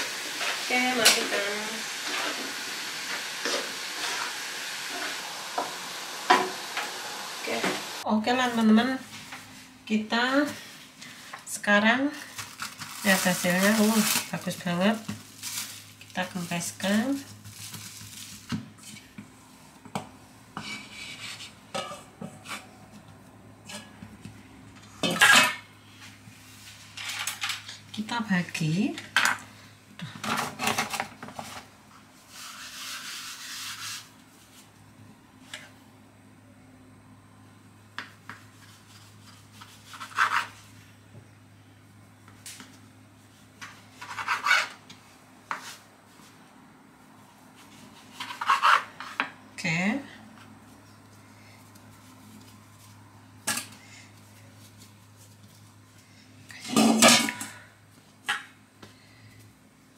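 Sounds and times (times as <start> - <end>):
knife scraping wooden board: 38.6 - 40.6, 44.0 - 44.8, 48.0 - 49.2.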